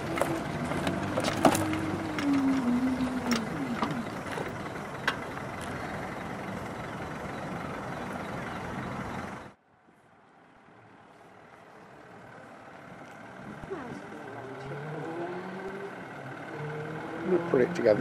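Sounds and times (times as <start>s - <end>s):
vehicle engine rumbling: 0.0s - 18.0s.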